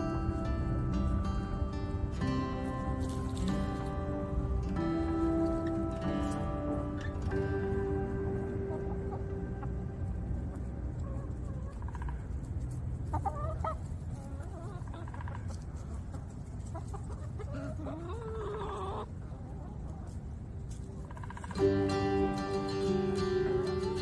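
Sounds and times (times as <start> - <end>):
hens clucking: 5.0 - 24.0.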